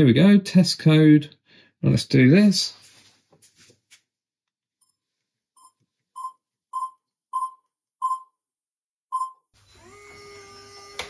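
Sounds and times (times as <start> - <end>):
keypad beeps: 5.6 - 8.4, 9.1 - 9.4.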